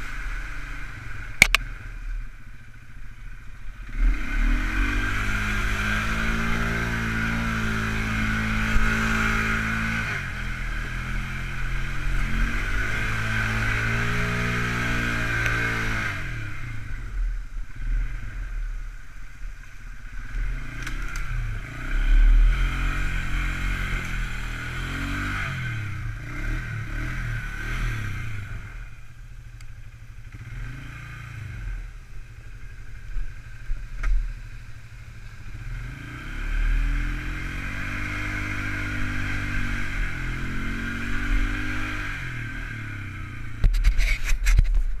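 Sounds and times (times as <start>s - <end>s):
quad bike engine revving: 0.0s - 2.1s, 3.7s - 18.8s, 20.1s - 44.8s
knocks and rattles over rough ground: 43.6s - 45.0s.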